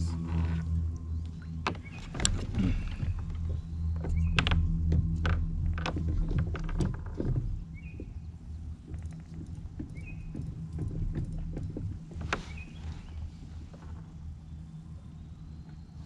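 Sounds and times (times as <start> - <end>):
steady low hum: 0.0 - 16.0
knocks and rattles on kayak: 1.6 - 14.4.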